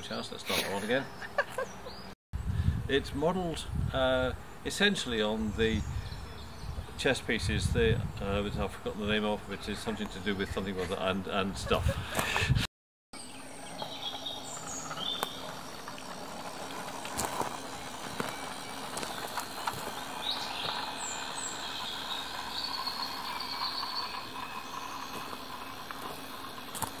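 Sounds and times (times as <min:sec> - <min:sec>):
birds chirping: 0:00.0 - 0:12.6, 0:13.2 - 0:27.0
model train rolling on track: 0:14.1 - 0:27.0.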